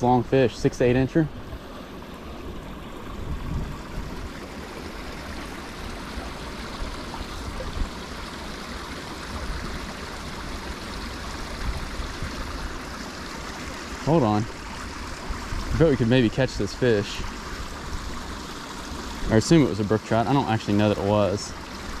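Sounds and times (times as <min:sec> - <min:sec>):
creek trickling over rocks: 0:00.0 - 0:22.0.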